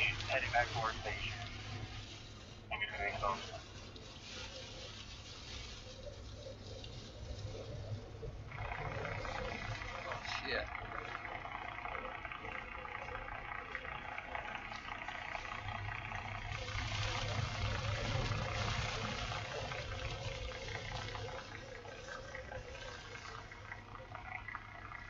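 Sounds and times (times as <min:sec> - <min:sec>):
storm wind and rain: 0:14.0 - 0:23.9.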